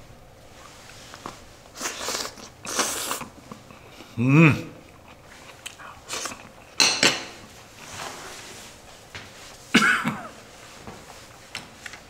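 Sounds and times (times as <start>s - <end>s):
metal spoon clinking on plate: 6.8s - 7.4s.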